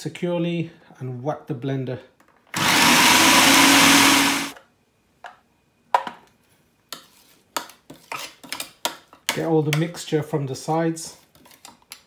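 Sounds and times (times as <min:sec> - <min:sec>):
food processor running: 0:02.6 - 0:04.6.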